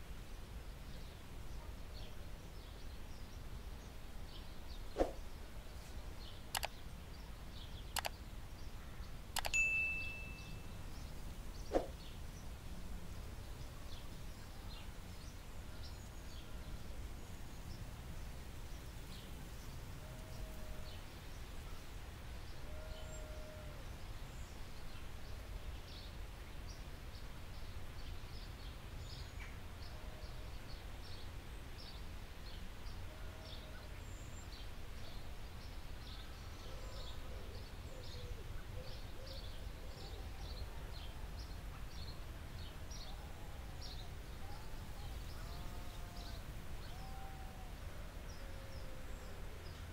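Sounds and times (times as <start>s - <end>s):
steady low hiss: 0.0s - 49.9s
faint high chirps: 9.4s - 10.8s.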